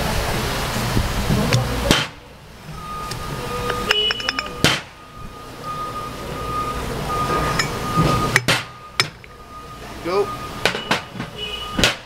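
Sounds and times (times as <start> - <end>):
low shop rumble: 0.0 - 12.0
metal valve knocking and clinking: 3.6 - 4.8, 7.5 - 9.3.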